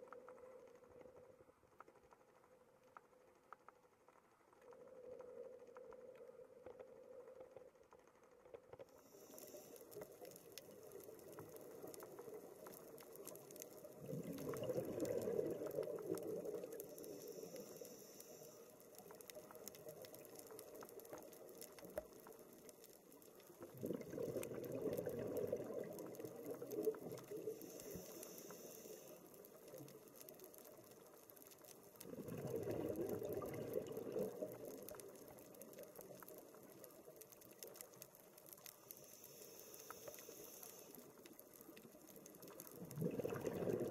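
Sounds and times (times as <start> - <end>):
faint steady crackle: 0.0 - 43.9
exhaled bubbles rushing: 13.9 - 16.8, 23.6 - 27.4, 32.0 - 34.9, 42.7 - 43.9
high hiss of inhalation: 16.9 - 18.8, 27.5 - 29.3, 38.9 - 41.1.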